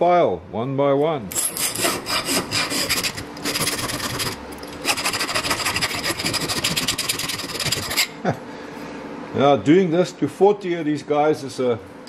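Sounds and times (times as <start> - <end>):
file rasping on metal pipe: 1.3 - 8.1.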